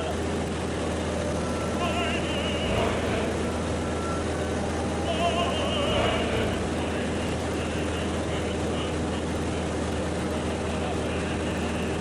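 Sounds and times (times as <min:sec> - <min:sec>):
aircraft engine and propeller drone: 0:00.0 - 0:12.0
faint wavering voice-like tone: 0:01.0 - 0:08.8.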